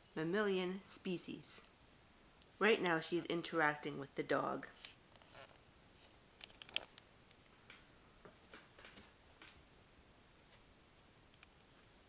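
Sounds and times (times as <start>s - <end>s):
faint clicks and ticks: 10.4s - 12.0s.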